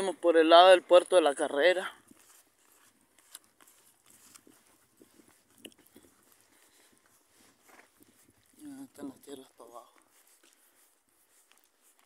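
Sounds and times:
horse hooves walking on dirt: 0.0 - 12.0.

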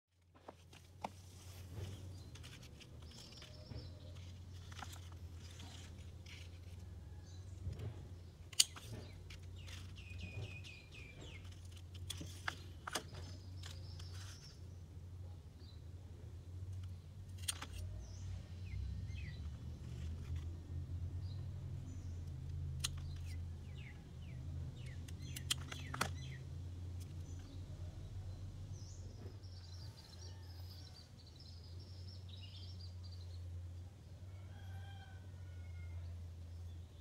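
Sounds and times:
birds chirping: 1.8 - 15.9, 16.7 - 20.4, 21.2 - 33.6
pruning shears snipping: 8.5 - 14.1.

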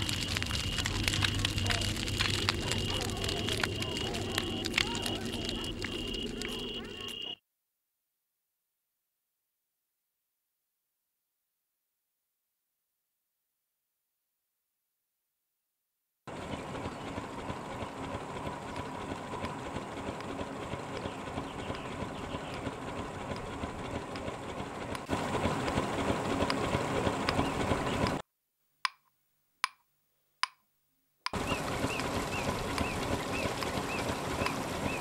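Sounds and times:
noisy engine running: 0.0 - 7.4, 16.3 - 28.2, 31.3 - 35.0.

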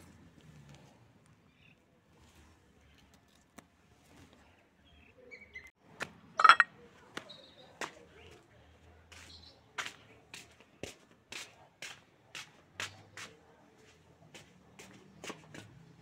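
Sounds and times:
ringing glass clink: 6.4 - 6.7
taps and rustles of handling plants: 9.1 - 16.0.

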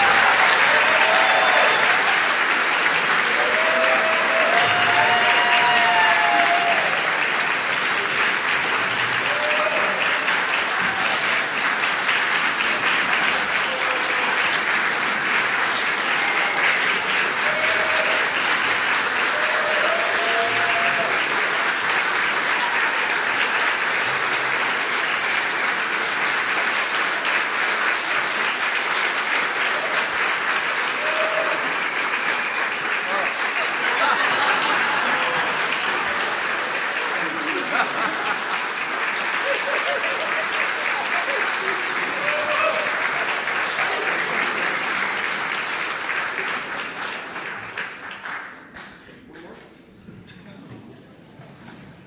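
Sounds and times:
whoops from crowd: 0.0 - 2.2, 3.4 - 7.1, 9.2 - 10.0, 19.3 - 21.1, 31.0 - 31.7, 41.2 - 43.0
audience applauding: 0.0 - 49.7.

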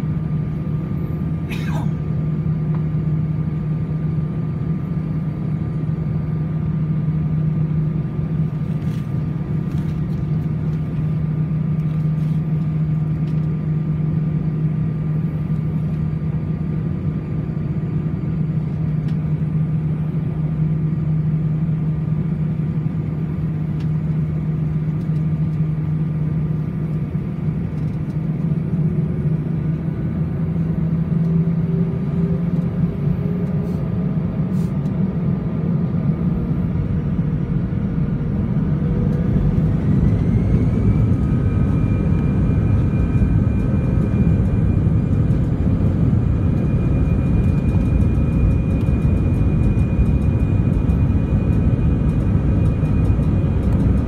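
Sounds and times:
jet engines humming in cabin: 0.0 - 54.0.

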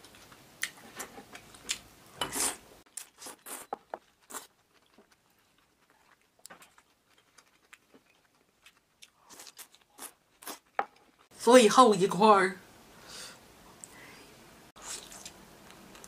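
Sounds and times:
person eating noodles: 0.6 - 10.8, 14.8 - 15.4.

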